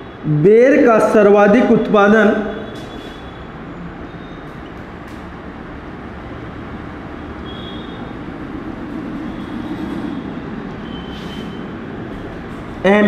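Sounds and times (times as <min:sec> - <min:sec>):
low rumbling background noise: 0:00.0 - 0:13.0
marker squeaking on whiteboard: 0:02.4 - 0:05.2, 0:08.8 - 0:13.0.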